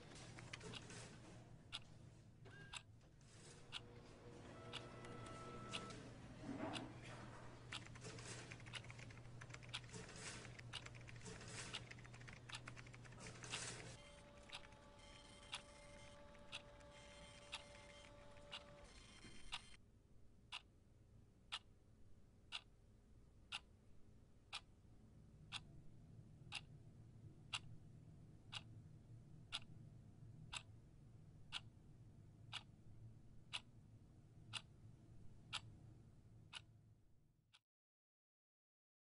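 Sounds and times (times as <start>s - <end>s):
wall clock ticking: 3.6s - 6.0s, 6.7s - 19.8s.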